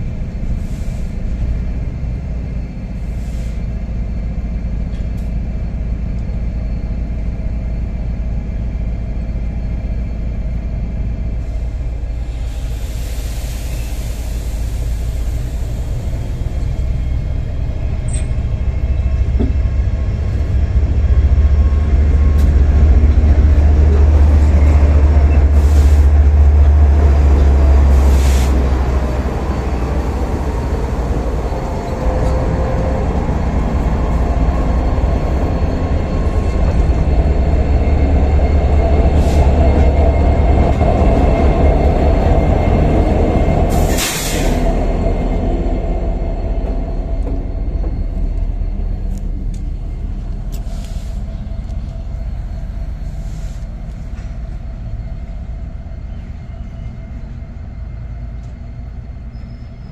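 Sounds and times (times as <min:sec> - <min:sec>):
locomotive engine drone: 0:00.0 - 0:59.9.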